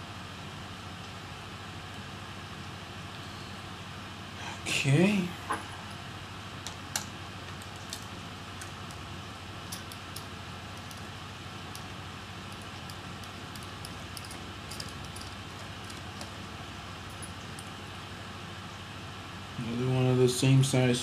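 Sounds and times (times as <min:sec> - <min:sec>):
screwdriver and screws clicking: 0:09.7 - 0:11.1, 0:12.5 - 0:16.4.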